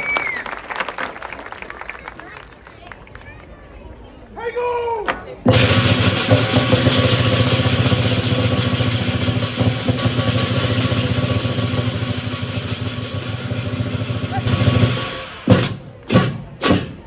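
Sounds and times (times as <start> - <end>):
drum roll: 5.5 - 17.0.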